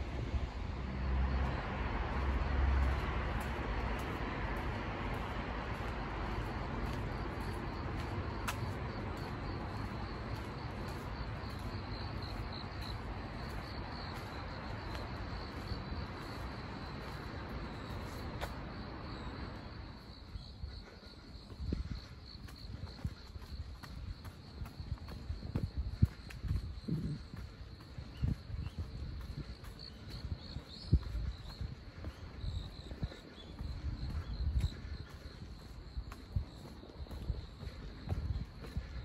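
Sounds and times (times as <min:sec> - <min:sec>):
crickets chirping: 0:00.0 - 0:39.0
distant traffic: 0:00.0 - 0:39.0
footsteps: 0:02.1 - 0:18.6.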